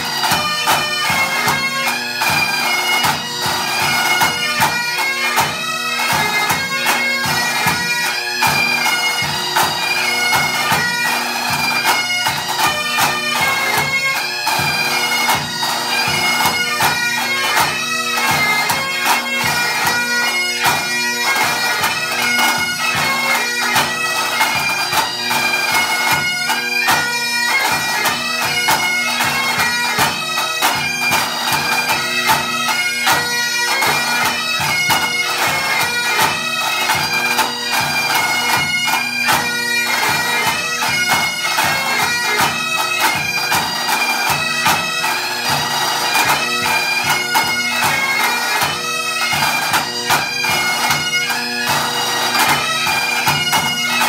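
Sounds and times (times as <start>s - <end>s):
bagpipes playing a tune: 0.0s - 54.0s
tenor drums: 0.0s - 54.0s.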